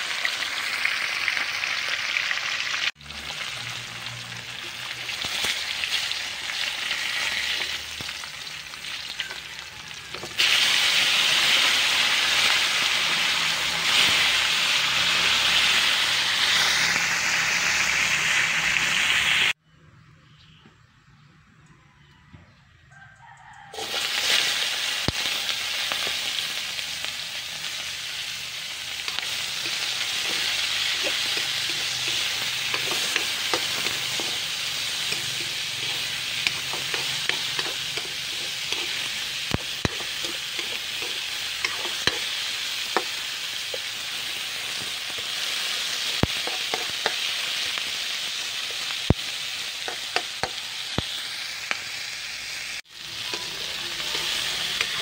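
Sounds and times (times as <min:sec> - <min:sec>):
vegetables sizzling in hot oil: 0:00.0 - 0:19.6, 0:23.7 - 0:55.0
spatula scraping a wok: 0:03.2 - 0:19.3, 0:28.8 - 0:48.9, 0:53.0 - 0:55.0.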